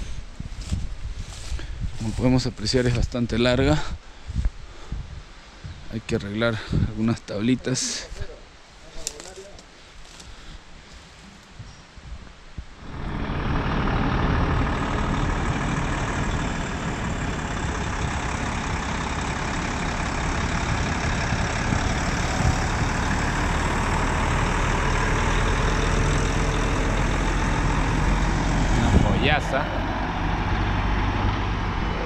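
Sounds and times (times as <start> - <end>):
diesel truck engine passing: 12.8 - 32.0.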